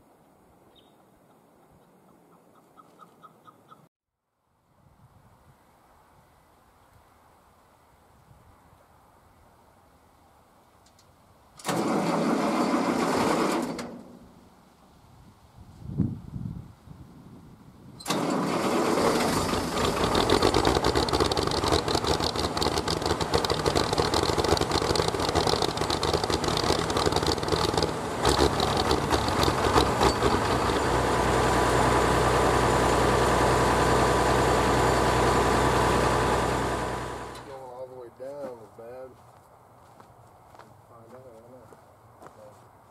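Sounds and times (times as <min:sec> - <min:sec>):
tractor engine starting and idling: 0:11.6 - 0:14.4, 0:18.0 - 0:37.6.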